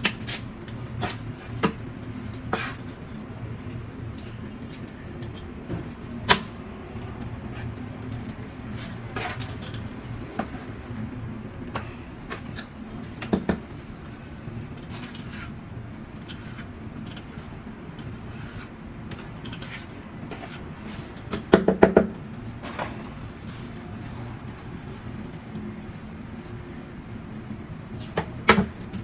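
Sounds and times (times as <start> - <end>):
trowel scraping mortar: 2.5 - 2.8, 14.8 - 15.6, 16.2 - 18.7.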